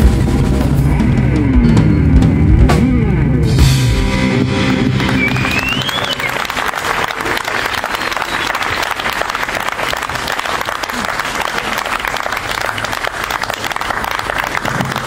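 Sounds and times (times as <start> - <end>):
crowd clapping: 4.4 - 15.0.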